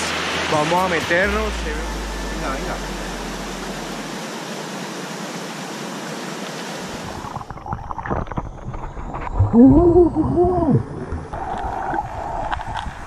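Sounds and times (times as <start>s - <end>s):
river water over rocks: 0.0s - 9.6s, 10.4s - 13.0s
underwater gurgling bubbles: 7.0s - 13.0s.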